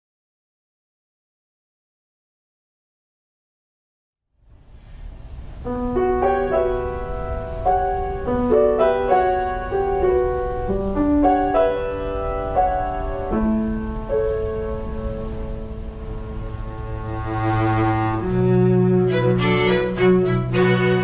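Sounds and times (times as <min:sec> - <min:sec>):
grand piano playing chords: 0:05.4 - 0:21.0.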